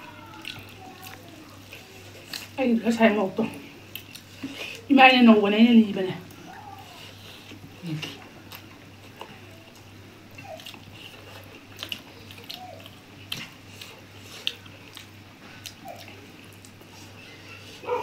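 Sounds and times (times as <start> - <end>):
wet chewing and lip-smacking: 3.9 - 4.8, 6.3 - 17.2.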